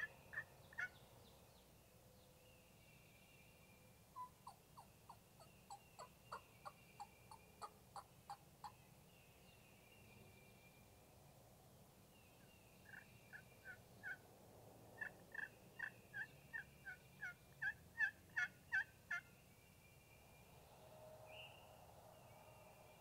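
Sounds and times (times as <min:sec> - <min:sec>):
wild turkey yelping: 0:00.0 - 0:01.0, 0:04.2 - 0:08.8, 0:15.0 - 0:19.3.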